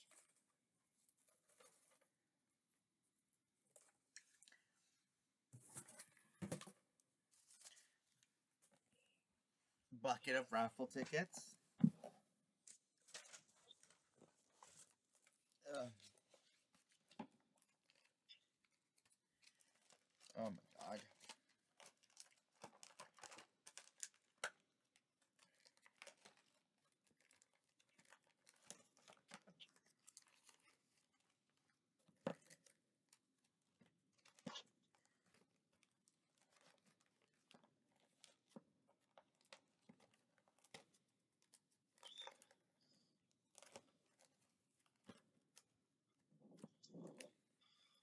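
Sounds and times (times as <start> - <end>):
material rustling and tearing: 12.6 - 47.8.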